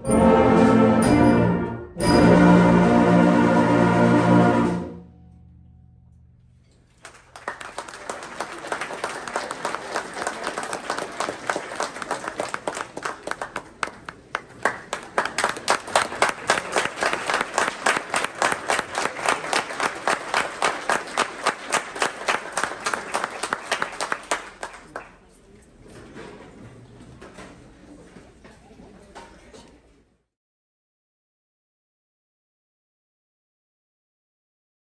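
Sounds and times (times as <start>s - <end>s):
crowd applauding: 6.9s - 25.3s.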